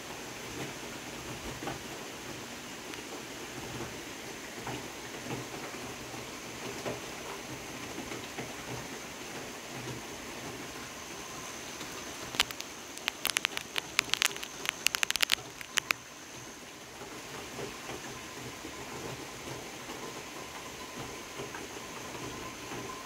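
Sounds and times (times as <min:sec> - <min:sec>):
steady rain: 0:00.0 - 0:23.0
sharp irregular taps: 0:12.2 - 0:16.0.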